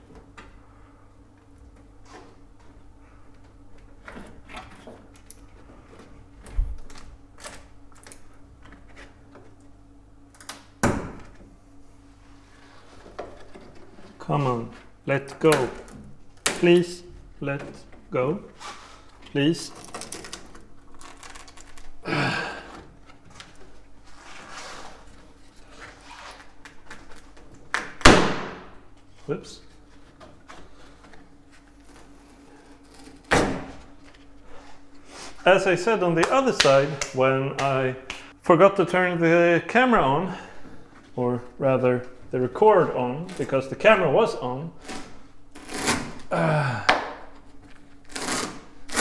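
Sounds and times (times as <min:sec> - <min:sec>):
scraping and rustling: 0:23.1 - 0:27.4.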